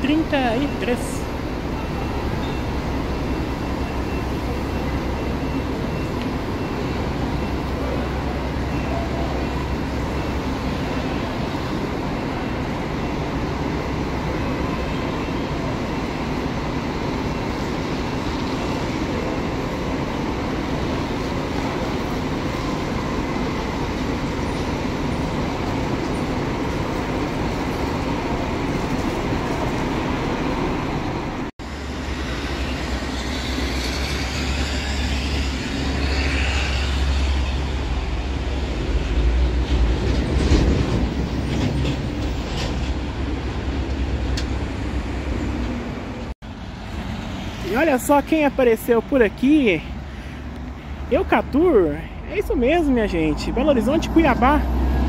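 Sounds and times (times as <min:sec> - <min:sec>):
diesel engine rumbling: 0:00.0 - 0:55.0.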